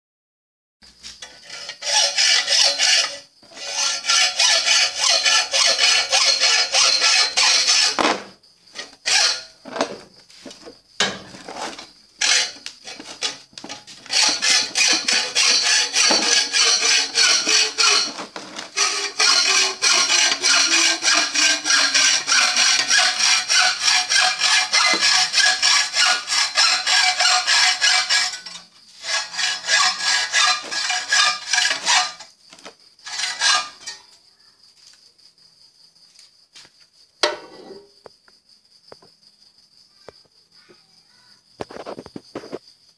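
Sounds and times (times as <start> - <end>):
hacksaw cutting metal pipe: 1.2 - 9.6, 12.2 - 32.3, 33.0 - 34.0, 37.2 - 37.8.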